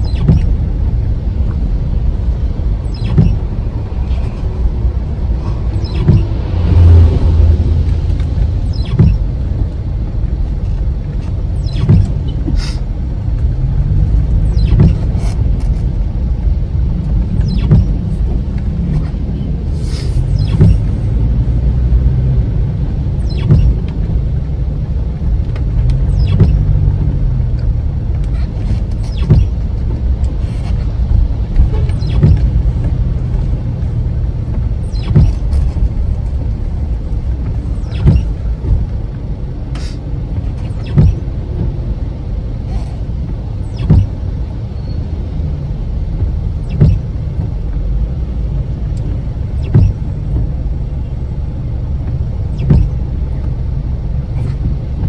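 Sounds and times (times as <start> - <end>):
car engine and tyres rumbling: 0.0 - 55.0
short knocks: 20.4 - 21.0, 34.5 - 36.6, 40.8 - 41.7, 43.8 - 44.2, 49.1 - 50.6, 52.0 - 53.6.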